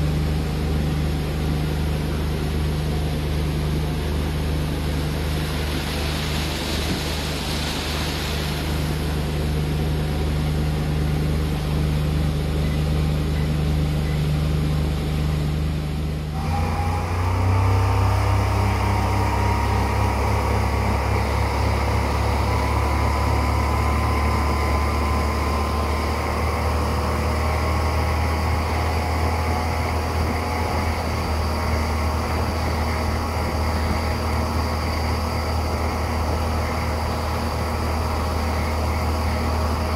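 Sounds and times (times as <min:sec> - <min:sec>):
faint engine whine: 0:00.0 - 0:39.9
outboard motor running: 0:00.0 - 0:39.9
wind: 0:00.0 - 0:39.9
rushing water: 0:04.3 - 0:10.4.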